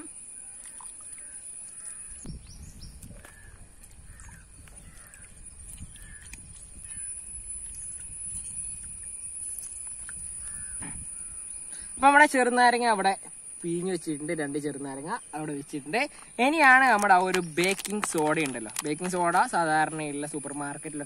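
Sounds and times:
birds calling: 0.0s - 7.8s, 10.1s - 12.1s.

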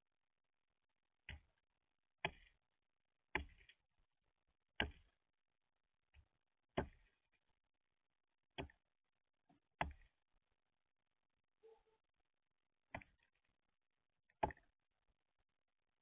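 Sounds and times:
bird bill knocking on wood: 14.4s - 14.7s.

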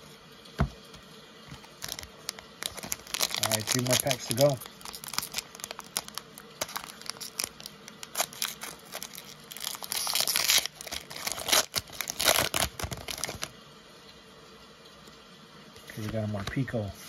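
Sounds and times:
foil wrapper crinkling: 1.5s - 13.5s
foil tearing rip: 1.6s - 13.5s.

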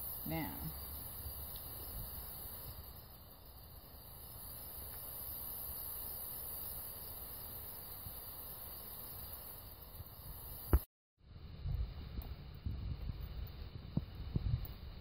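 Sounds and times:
insects chirping: 0.0s - 10.9s.

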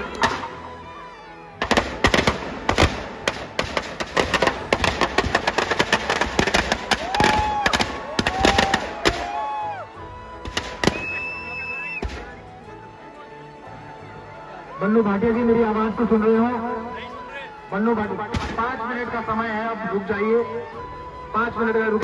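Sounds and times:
firecrackers banging: 1.6s - 9.6s, 10.4s - 11.4s, 18.3s - 18.8s
falling whistles: 10.8s - 12.1s.

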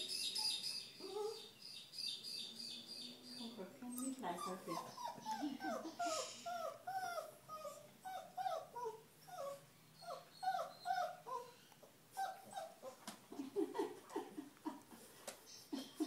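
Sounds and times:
small dog whining: 0.4s - 1.6s, 3.9s - 13.0s.

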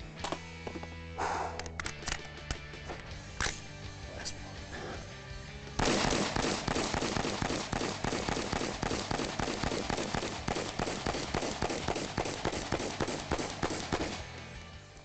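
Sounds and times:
rapid rifle gunfire: 5.8s - 14.4s.

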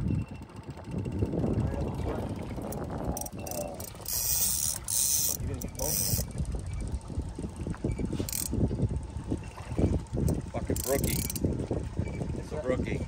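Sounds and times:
outboard motor hum: 0.0s - 13.0s
fishing reel ratcheting: 2.5s - 11.6s.

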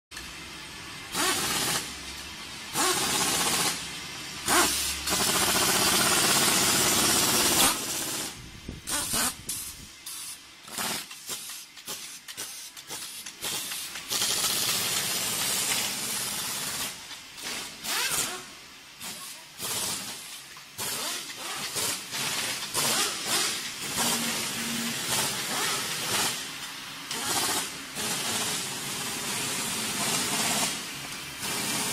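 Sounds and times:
compressed air hissing: 4.4s - 26.5s.

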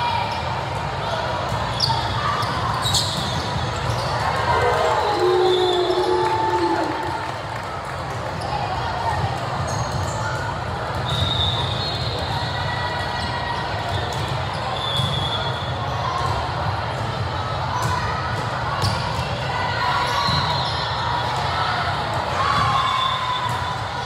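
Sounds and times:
voices of players and spectators: 0.0s - 24.0s
sneakers squeaking on court: 1.4s - 4.4s.

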